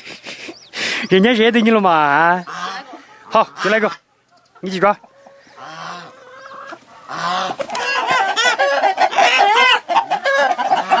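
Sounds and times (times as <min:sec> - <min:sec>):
chickens clucking: 0:00.0 - 0:11.0
rooster squawking and cackling: 0:02.3 - 0:04.1, 0:05.0 - 0:11.0.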